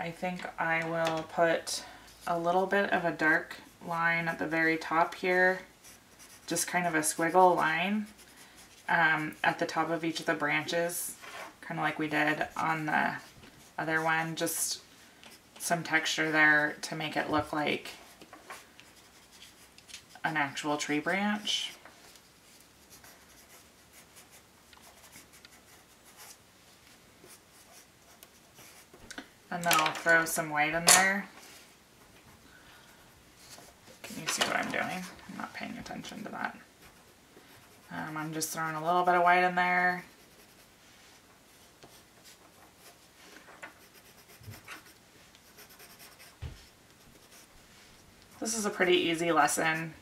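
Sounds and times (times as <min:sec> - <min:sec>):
pen scratching on paper: 0:05.8 - 0:09.6, 0:18.8 - 0:20.3, 0:22.8 - 0:26.4, 0:43.8 - 0:46.4, 0:47.1 - 0:47.5
drawing tool scratching on paper: 0:43.8 - 0:46.4.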